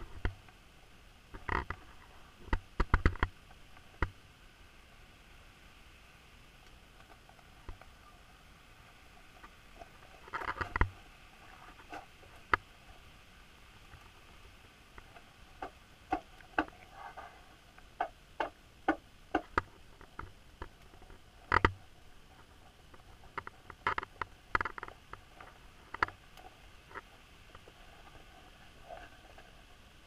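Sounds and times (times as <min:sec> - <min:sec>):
underwater sharp clicks and taps: 0:00.0 - 0:00.4, 0:02.4 - 0:04.2, 0:09.4 - 0:11.0, 0:14.9 - 0:27.8
faint steady hiss: 0:00.0 - 0:30.0.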